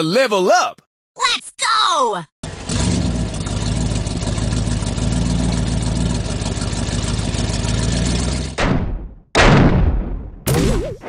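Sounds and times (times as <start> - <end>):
large truck engine running: 2.4 - 8.6.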